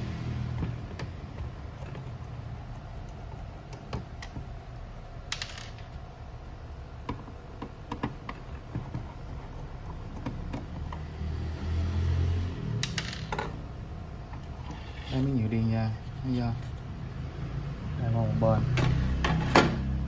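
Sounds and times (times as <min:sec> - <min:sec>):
plastic parts knocking: 0:07.0 - 0:11.0.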